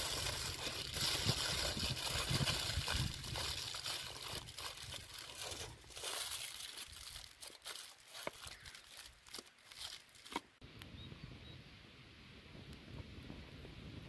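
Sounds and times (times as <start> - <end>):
aluminium foil crinkling: 0.0 - 10.6.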